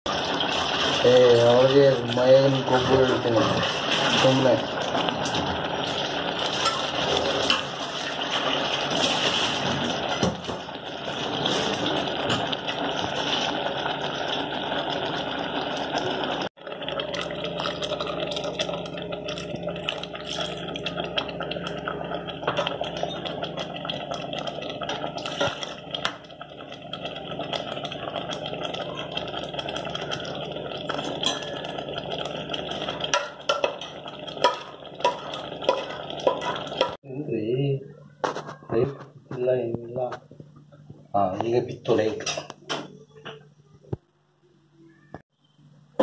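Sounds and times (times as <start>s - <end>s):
curry boiling and bubbling: 0.1s - 42.9s
bubbles popping: 9.9s - 37.0s.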